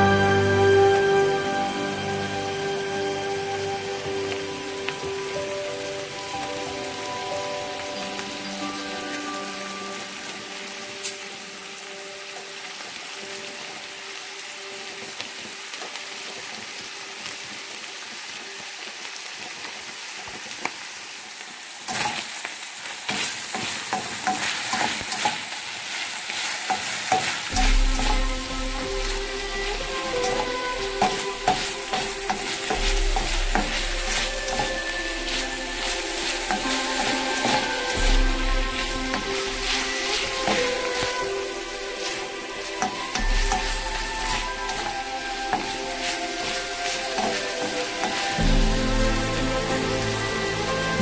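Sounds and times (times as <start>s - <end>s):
meat sizzling in hot oil: 0.0s - 51.0s
spatula scraping a pan: 23.1s - 48.4s.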